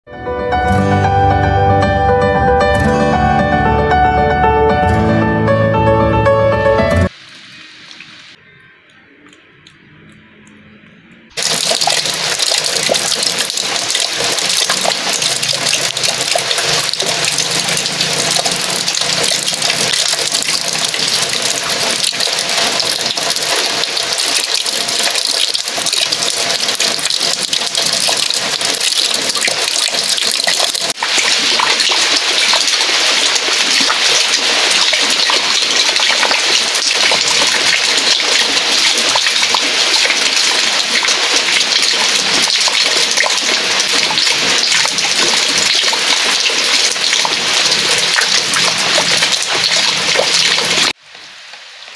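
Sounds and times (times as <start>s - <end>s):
heavy rain: 11.3s - 51.9s
water pouring into a bucket: 11.4s - 51.0s.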